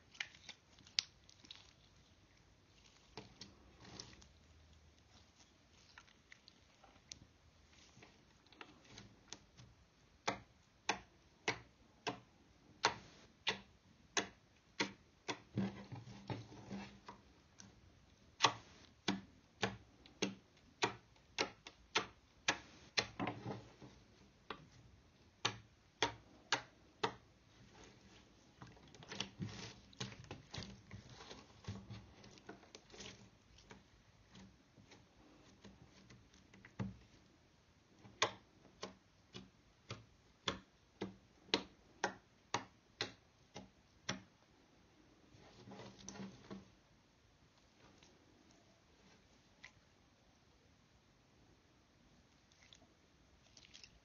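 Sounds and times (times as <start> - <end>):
slime squishing: 0.0 - 13.6, 24.5 - 37.2, 52.3 - 54.0.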